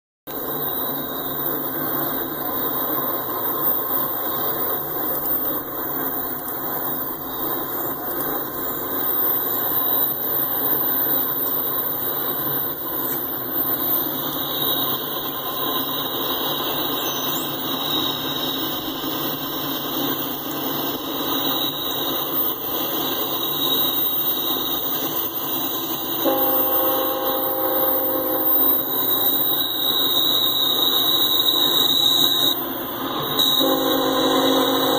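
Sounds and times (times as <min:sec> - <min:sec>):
freight train rolling: 0:00.3 - 0:34.9
high-pitched wheel squeal: 0:08.6 - 0:34.9
locomotive air horn: 0:26.2 - 0:34.9.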